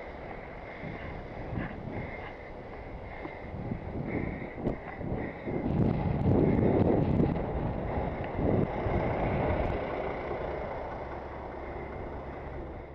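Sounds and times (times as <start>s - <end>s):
nearby traffic: 0.0s - 12.9s
wind buffeting microphone: 0.0s - 12.9s.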